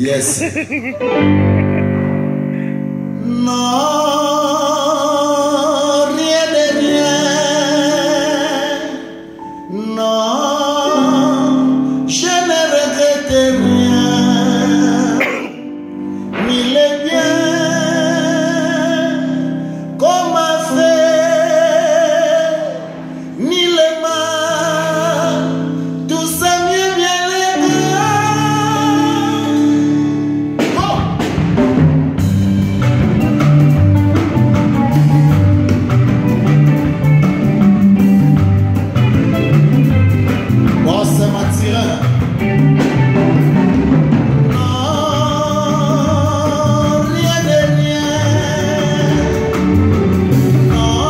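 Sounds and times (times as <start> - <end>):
man singing with vibrato: 0.0 - 1.3, 2.5 - 31.4, 33.7 - 51.0
drum kit beat: 0.0 - 2.6, 30.4 - 51.0
sustained band chords: 0.0 - 3.5, 27.6 - 51.0.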